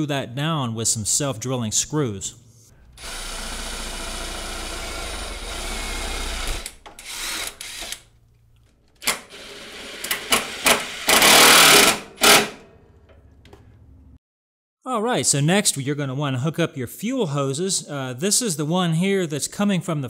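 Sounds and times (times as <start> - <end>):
cordless drill boring metal: 3.0 - 8.0, 9.1 - 12.6.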